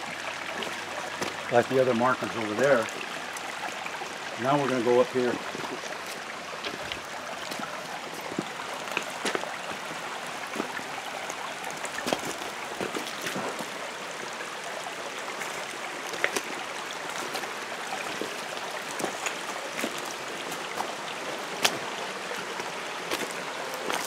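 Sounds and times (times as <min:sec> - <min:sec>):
creek running over rocks: 0:00.0 - 0:24.0
footsteps on stones: 0:05.7 - 0:09.6, 0:11.8 - 0:13.7, 0:17.1 - 0:20.9, 0:23.1 - 0:24.0.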